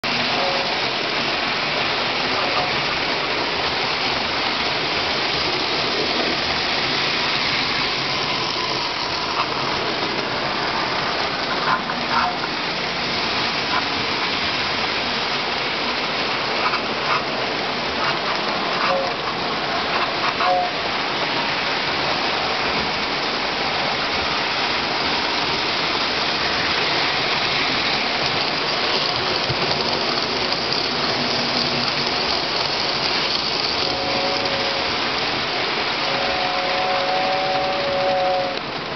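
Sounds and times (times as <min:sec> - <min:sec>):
model train running on track: 0:00.0 - 0:38.9
two-note train whistle: 0:00.3 - 0:00.8, 0:18.8 - 0:19.2, 0:20.4 - 0:20.8, 0:33.8 - 0:35.0, 0:36.0 - 0:38.6.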